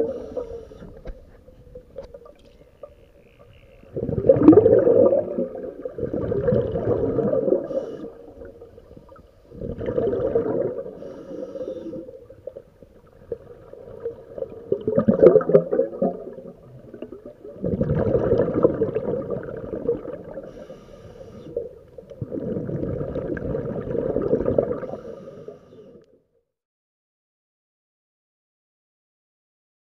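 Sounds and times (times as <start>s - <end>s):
exhaled breath bubbling underwater: 0.0s - 1.2s, 3.8s - 26.0s.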